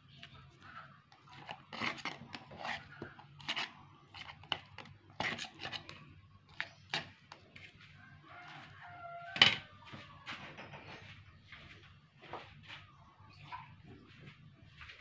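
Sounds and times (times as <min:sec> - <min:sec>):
plastic spatula scraping bowl: 0:01.1 - 0:07.4.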